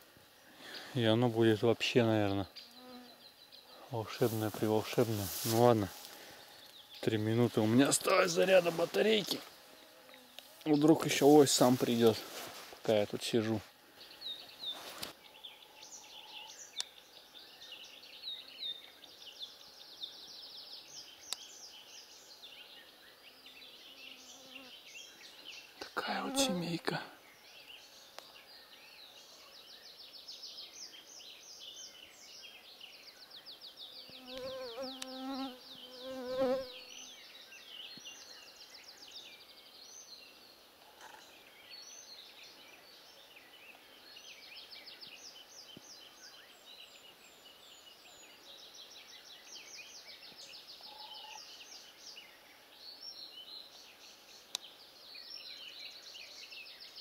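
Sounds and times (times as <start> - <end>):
flying insect buzzing: 34.1 - 37.0.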